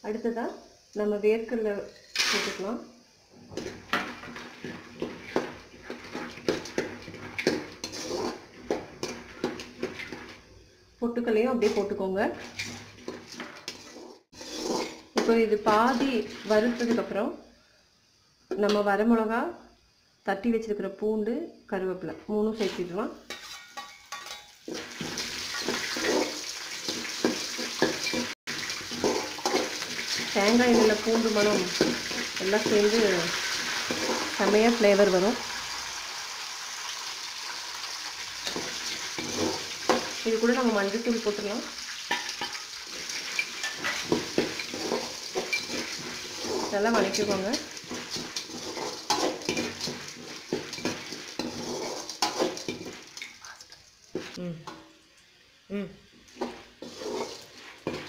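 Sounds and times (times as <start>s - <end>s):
frying sizzle: 0.0s - 20.0s, 22.4s - 58.0s
metal spatula scraping pan: 3.5s - 10.4s, 11.6s - 17.2s, 22.6s - 34.8s, 38.4s - 53.4s, 56.3s - 58.0s.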